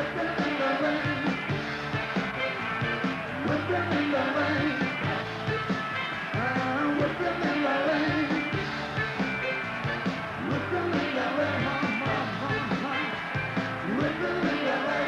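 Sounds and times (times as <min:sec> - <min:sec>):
man singing: 0:00.0 - 0:01.3, 0:03.3 - 0:05.2, 0:06.4 - 0:08.4, 0:10.4 - 0:13.2, 0:13.8 - 0:15.0
drums: 0:00.0 - 0:15.0
electric guitar: 0:00.0 - 0:15.0.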